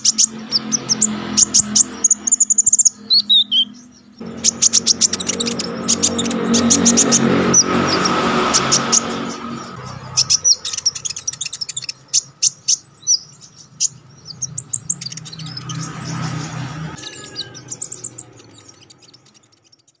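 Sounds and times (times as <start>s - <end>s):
bird chirping and trilling: 0.0s - 20.0s.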